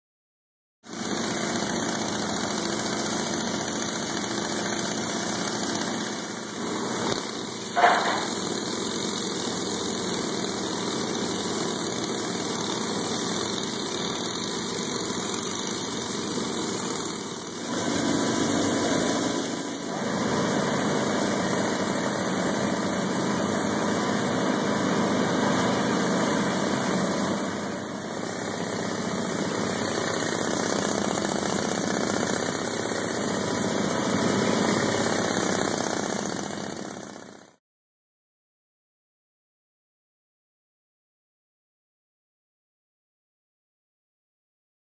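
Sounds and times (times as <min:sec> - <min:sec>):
pneumatic air hammer tamping: 0:00.8 - 0:37.6
sharp knock: 0:07.8 - 0:08.4.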